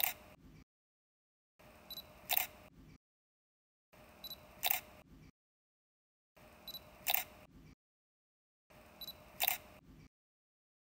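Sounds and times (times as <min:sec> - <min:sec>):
camera shutter snap: 0:02.3 - 0:02.5, 0:04.6 - 0:04.8, 0:07.0 - 0:07.3, 0:09.4 - 0:09.6.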